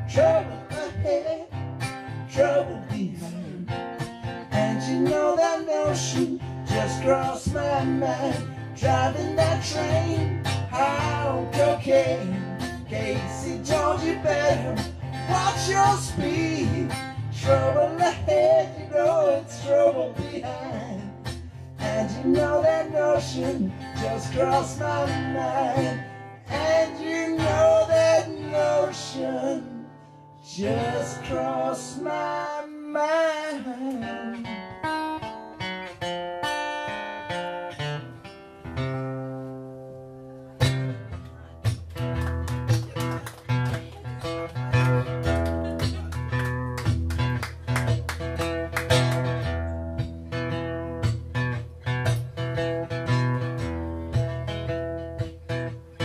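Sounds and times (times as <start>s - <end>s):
man singing: 0.0s - 1.6s, 2.2s - 3.8s, 4.5s - 34.5s
acoustic guitar: 0.0s - 56.0s.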